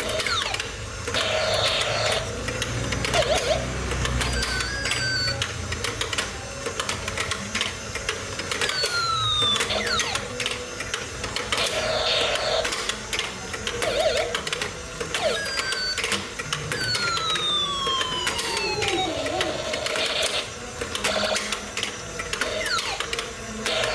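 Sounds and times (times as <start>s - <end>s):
electronic whistle-like tones: 3.2s - 5.4s, 15.2s - 19.1s.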